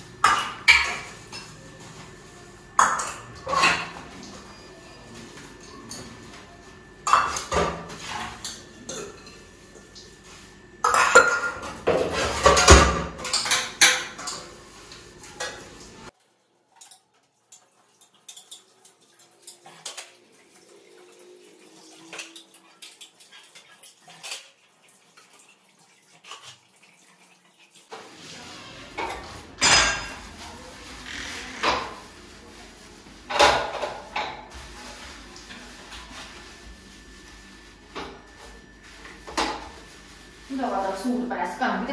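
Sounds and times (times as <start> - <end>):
dishes and cutlery clattering: 0.2 - 2.1, 2.8 - 6.4, 7.0 - 10.0, 10.8 - 15.9, 16.8 - 20.2, 21.8 - 24.6, 28.8 - 32.1, 33.3 - 34.5.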